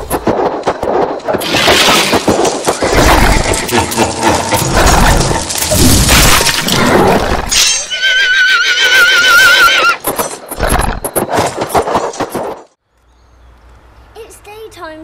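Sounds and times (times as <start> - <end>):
crashing and breaking clatter: 0.0 - 7.9, 10.0 - 12.8
horse whinnying: 6.8 - 10.1.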